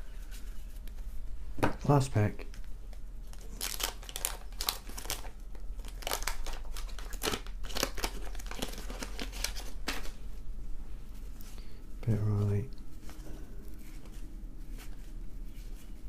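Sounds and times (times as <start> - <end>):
paper wrapper tearing and crinkling: 3.3 - 10.2.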